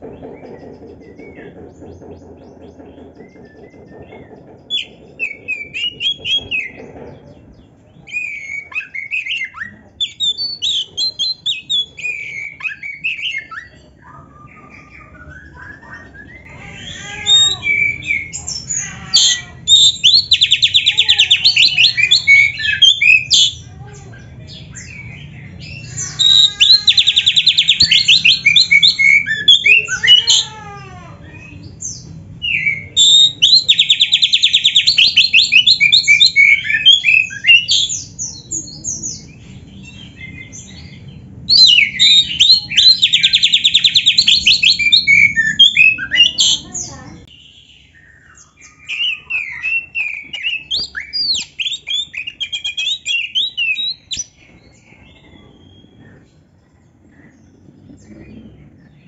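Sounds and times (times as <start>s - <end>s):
bird whistling and chirping: 3.2s - 6.8s, 8.0s - 23.6s, 24.8s - 30.5s, 31.3s - 38.5s, 41.5s - 46.7s, 47.8s - 56.3s.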